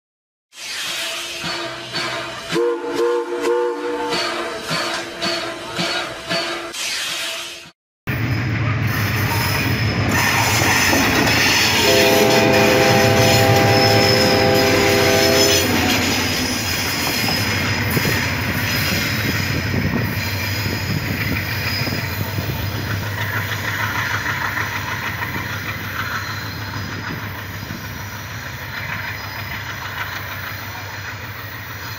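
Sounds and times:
train rumbling on rails: 0:00.6 - 0:31.9
locomotive air horn: 0:02.5 - 0:04.4, 0:11.6 - 0:16.1
wheel squeal: 0:15.3 - 0:31.9.

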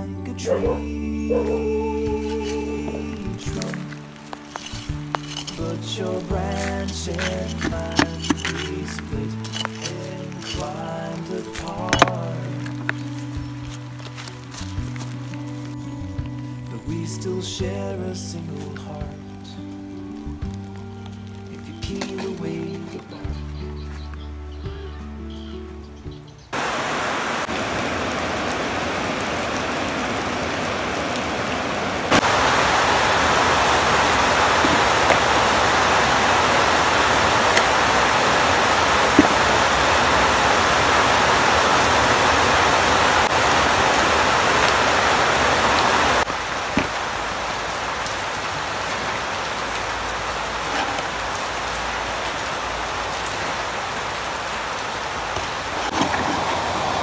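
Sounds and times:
rain falling: 0:00.0 - 0:24.4, 0:26.5 - 0:57.0.

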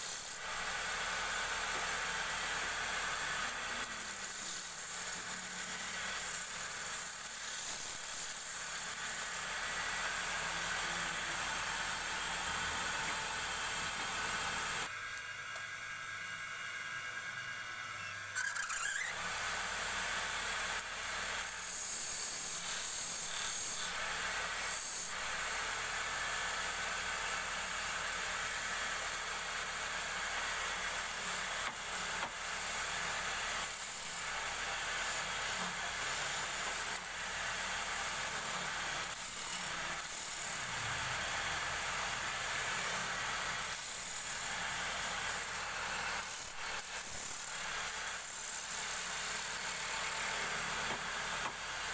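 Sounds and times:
lathe tool scraping wood: 0:00.0 - 0:14.9, 0:18.0 - 0:26.0.

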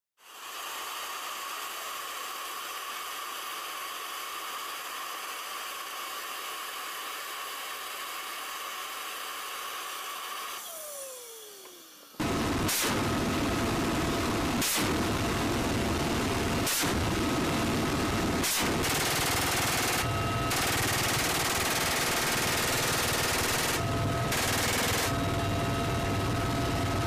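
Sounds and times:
helicopter turbine whine: 0:10.4 - 0:27.0.

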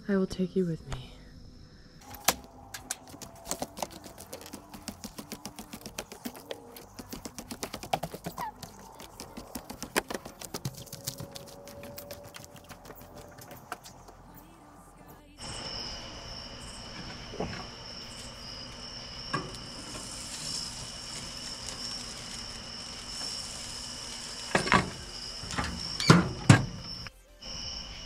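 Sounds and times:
footsteps on wooden boards: 0:02.2 - 0:14.3.

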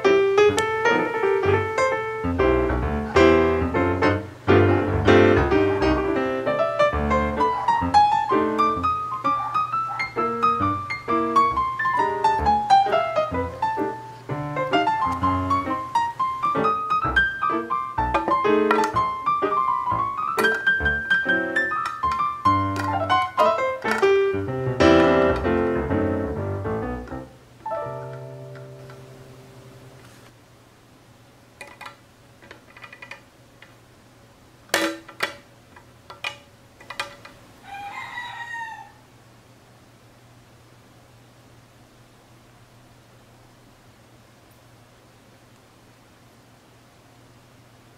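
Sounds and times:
piano music: 0:00.0 - 0:30.1
rooster crowing: 0:37.6 - 0:39.2.

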